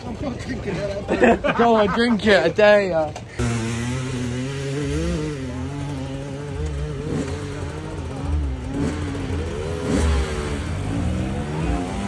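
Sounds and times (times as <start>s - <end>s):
motorcycle engine revving: 3.3s - 12.0s.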